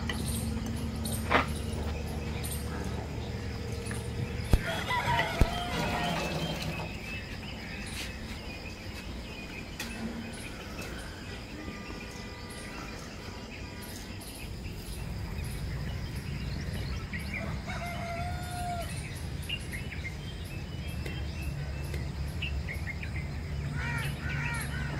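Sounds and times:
low rumble: 0.0s - 7.5s
birds chirping: 0.0s - 24.9s
insect drone: 0.0s - 24.9s
rooster crowing: 4.6s - 6.9s, 17.4s - 19.0s.

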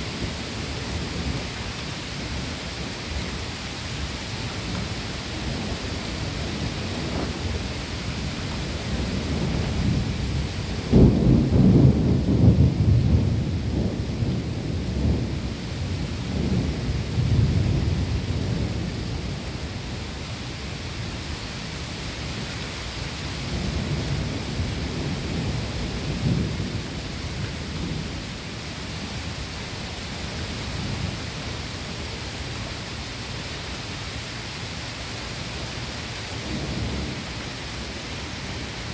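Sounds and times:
rain hissing: 0.0s - 38.9s
thunder rumbling: 4.5s - 19.9s, 23.4s - 29.4s, 36.3s - 38.9s.

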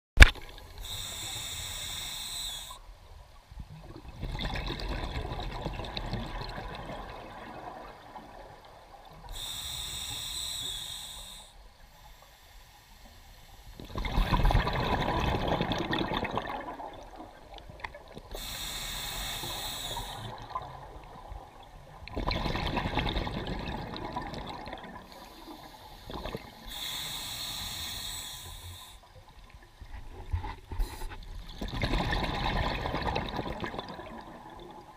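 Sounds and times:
diver inhaling through regulator: 0.8s - 2.8s, 9.2s - 13.8s, 18.3s - 20.4s, 25.1s - 29.0s
exhaust bubbles: 13.8s - 17.2s.

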